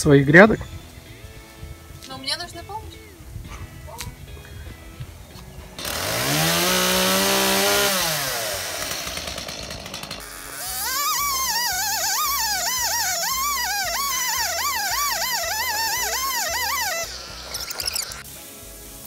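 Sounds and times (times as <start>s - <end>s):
chainsaw revving: 5.8s - 18.3s
music with warbling melody: 10.6s - 19.0s.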